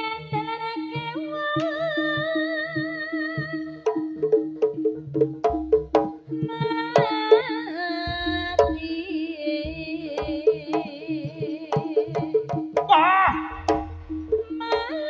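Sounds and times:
gamelan drum strokes: 0.0 - 15.0
steady held tone: 12.9 - 15.0.

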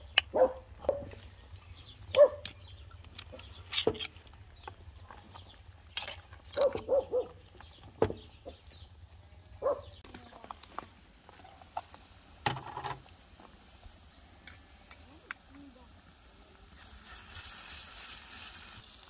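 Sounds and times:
dog barking: 0.3 - 1.1, 2.2 - 2.5, 6.6 - 7.4, 9.6 - 9.9.

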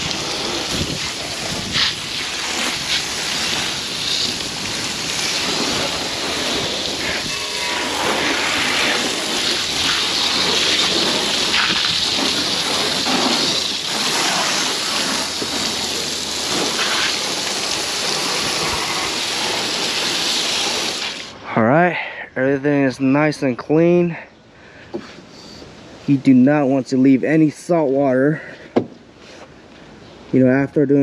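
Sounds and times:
hose water splashing on plastic: 0.0 - 21.4.

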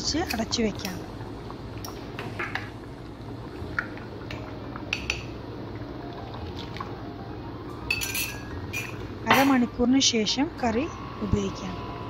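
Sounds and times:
spoon clinking against cup: 7.9 - 9.5.

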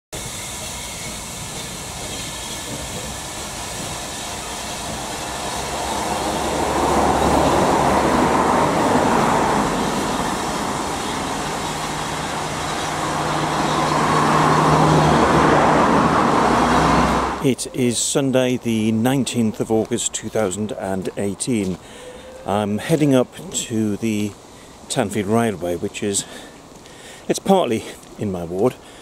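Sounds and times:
steam hissing: 0.1 - 18.4
steam locomotive rumbling: 0.1 - 28.9.

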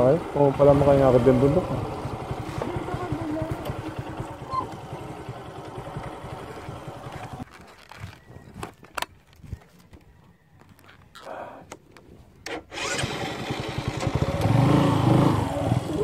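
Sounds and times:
motorcycle engine running: 0.0 - 7.9, 12.8 - 16.0.

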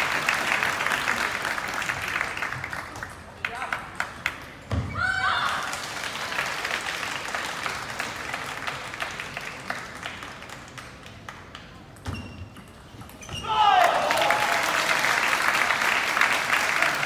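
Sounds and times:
spectators applauding: 0.0 - 4.4, 5.5 - 11.4, 13.7 - 17.0.

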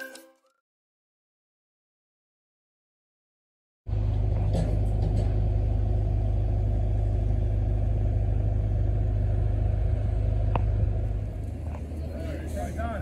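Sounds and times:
engine idling: 3.9 - 13.0.

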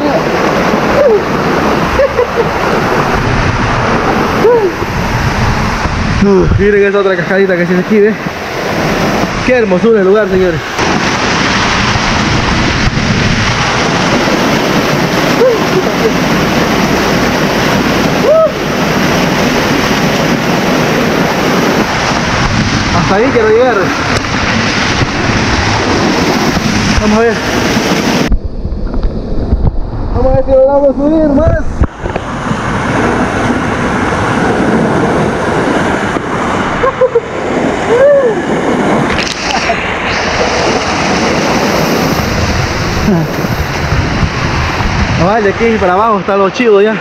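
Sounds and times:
waterfall rushing: 0.0 - 28.7, 31.4 - 47.0
person vocal sound: 4.4 - 4.9, 43.0 - 43.6.

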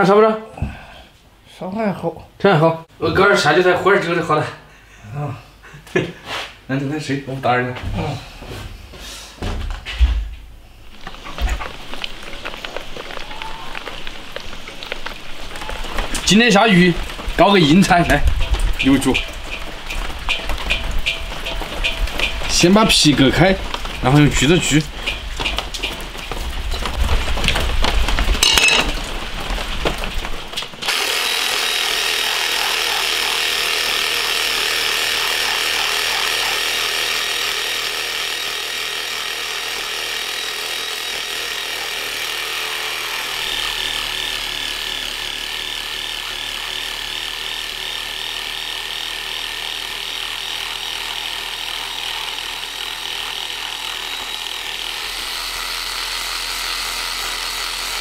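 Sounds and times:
reciprocating saw cutting bone: 30.8 - 58.0.

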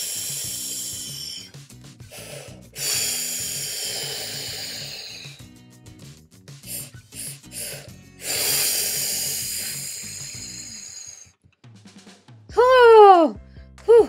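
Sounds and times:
person blowing breathy huffs: 0.0 - 5.6, 6.6 - 11.3
soft music: 0.0 - 11.8, 12.5 - 14.0.

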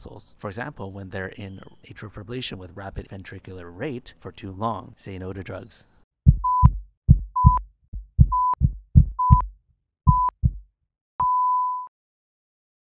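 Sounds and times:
heartbeat thumps: 6.2 - 10.7
heart monitor beeps: 6.3 - 9.5, 10.1 - 10.6, 11.2 - 11.9.

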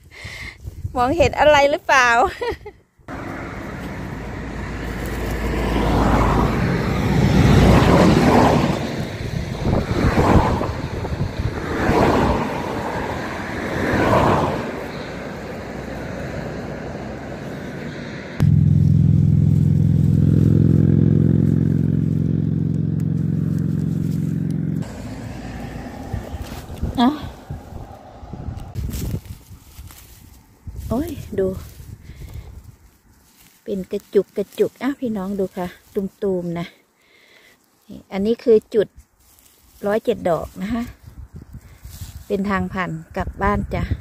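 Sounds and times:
low engine-like hum: 3.1 - 9.8, 14.4 - 29.4
rustling and scraping: 4.8 - 5.6, 23.0 - 25.1, 26.1 - 27.9, 28.5 - 36.6, 38.9 - 42.4.

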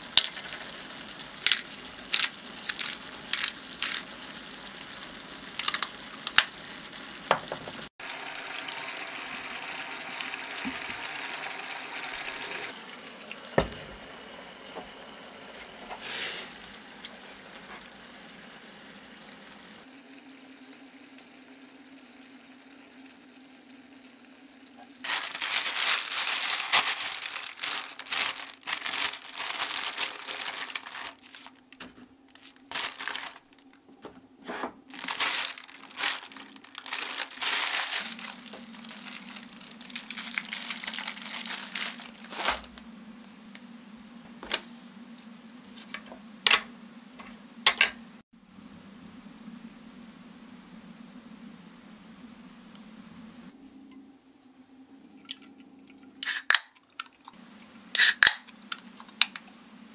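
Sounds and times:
faint steady hiss: 11.8 - 59.9
bread crinkling and tearing: 25.0 - 33.8, 34.9 - 42.8.

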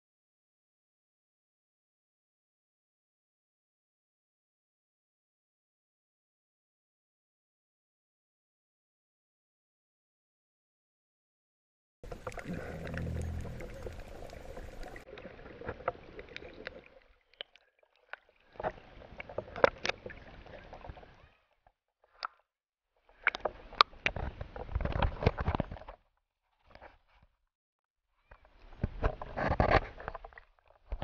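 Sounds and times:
water sloshing and gurgling: 12.0 - 21.2
water splashes: 12.0 - 21.3.

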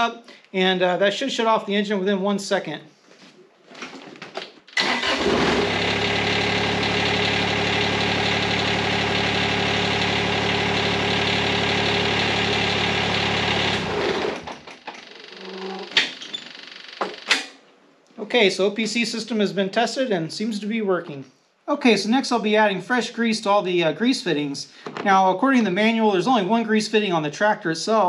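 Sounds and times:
diesel tractor engine idling: 4.8 - 14.4.

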